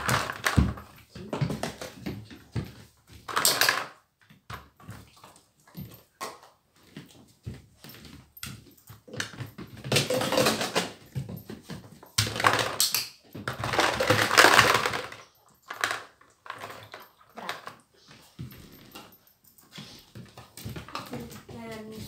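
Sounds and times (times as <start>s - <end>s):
plastic toys rattling: 3.3s - 4.0s, 9.9s - 11.0s, 12.2s - 17.8s
plastic bowl clattering and scraping: 9.2s - 17.8s.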